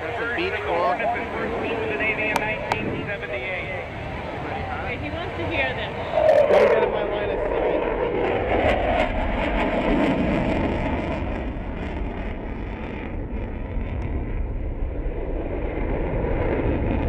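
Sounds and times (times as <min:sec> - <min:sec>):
jet roaring overhead: 0:00.0 - 0:17.0.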